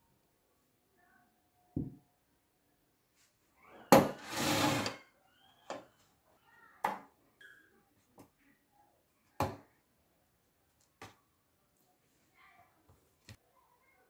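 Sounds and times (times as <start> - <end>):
metal pan scraping on wooden board: 4.1 - 5.0.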